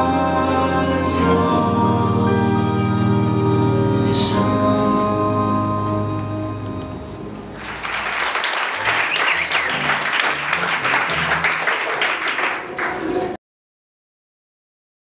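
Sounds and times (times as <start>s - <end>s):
held musical tones: 0.0s - 11.9s
audience applauding: 7.5s - 13.4s.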